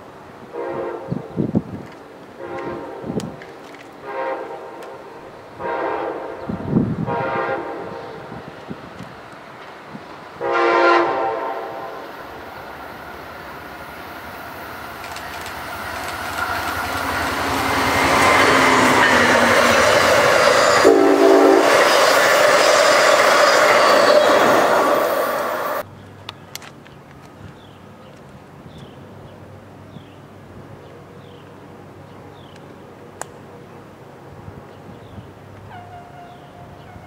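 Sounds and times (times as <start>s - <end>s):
train rushing on rails: 0.0s - 25.9s
train horn blasts: 0.5s - 1.3s, 2.4s - 3.3s, 4.0s - 5.0s, 5.6s - 8.3s, 10.4s - 12.2s, 17.1s - 25.8s, 35.7s - 37.0s.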